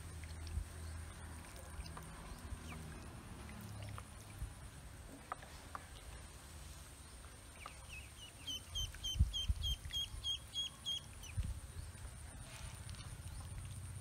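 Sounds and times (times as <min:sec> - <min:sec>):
ducklings peeping: 0:07.5 - 0:11.5.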